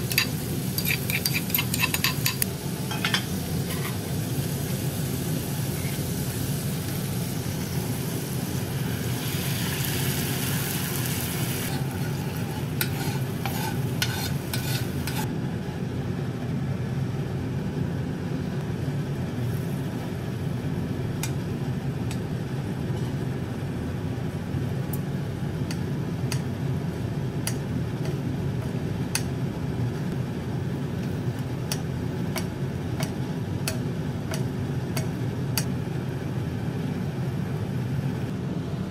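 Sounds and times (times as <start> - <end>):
utensils clicking against pan: 0.0 - 4.0, 11.7 - 15.3
sauce sizzling and bubbling: 0.0 - 15.3.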